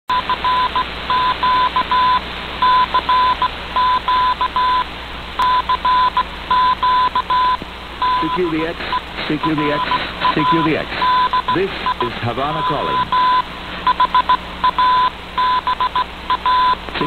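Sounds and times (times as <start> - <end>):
morse code beeping: 0.1 - 4.8, 5.4 - 16.8
shortwave radio static: 0.1 - 17.0.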